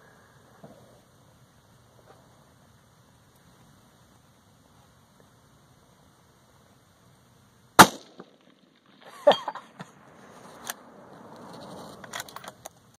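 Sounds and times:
rifle shot: 7.8 - 9.0
clicks and rustling: 11.4 - 12.9.

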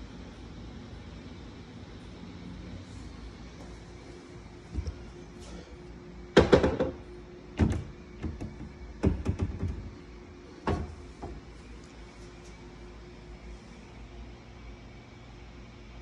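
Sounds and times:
faint steady hum: 0.0 - 16.0
cabinet doors knocking and clattering: 6.4 - 7.0, 7.6 - 9.9, 10.6 - 11.4.

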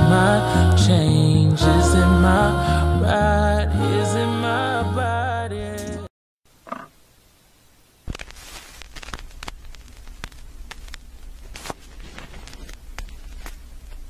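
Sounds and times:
hair rustling: 8.1 - 13.6.

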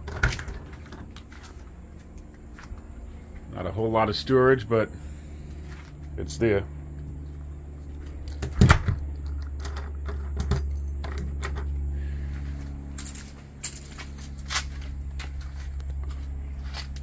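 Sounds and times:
keys jingling: 13.0 - 14.6.

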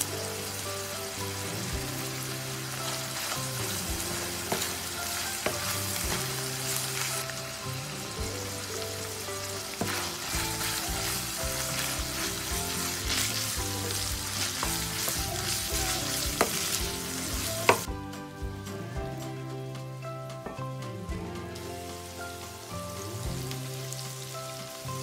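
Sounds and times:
meat sizzling in a frying pan: 0.0 - 17.9, 21.6 - 25.0
spatula scraping and knocking pan: 3.2 - 6.8, 9.7 - 17.9.

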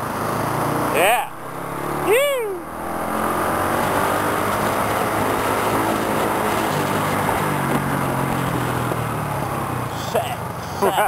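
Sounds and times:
road and wind noise: 0.0 - 11.0
motor scooter engine humming: 0.3 - 9.9.

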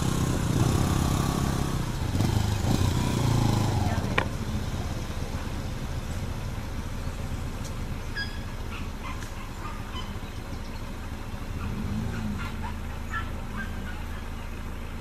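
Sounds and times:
vehicle engine idling: 0.0 - 15.0
bird chirps: 8.0 - 11.6.

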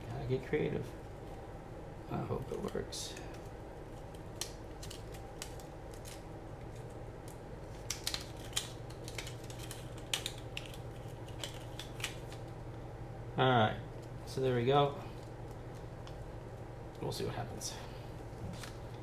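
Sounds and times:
steady low hum: 0.0 - 19.0
plastic tubing crinkling: 7.6 - 12.6.

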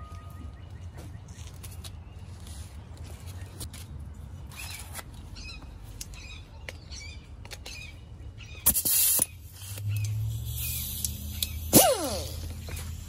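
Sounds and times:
birds chirping: 0.0 - 11.7
wire wheel tool hissing: 8.6 - 13.0.

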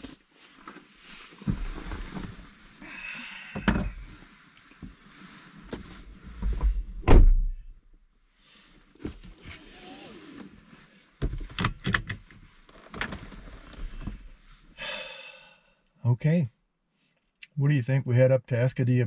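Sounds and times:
heavy thump: 6.5 - 7.6
seat belt buckle clicks: 11.5 - 12.2.

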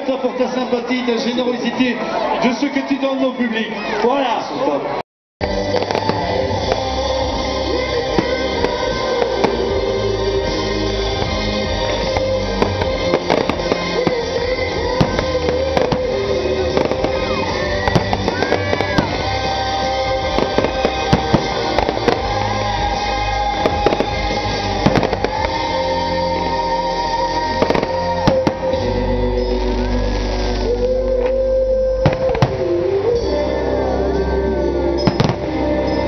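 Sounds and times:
loud music with heavy bass: 5.4 - 36.0
fireworks bangs: 5.5 - 31.4, 32.0 - 33.0, 35.0 - 35.6.

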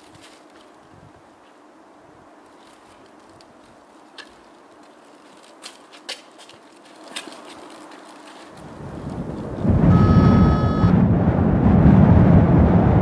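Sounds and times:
deep rumble: 8.6 - 13.0.

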